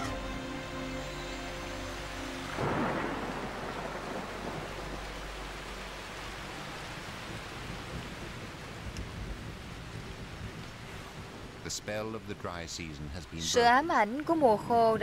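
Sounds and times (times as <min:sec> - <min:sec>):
steady rain falling: 0:00.0 - 0:15.0
thunderclap: 0:02.5 - 0:05.7, 0:07.0 - 0:11.6.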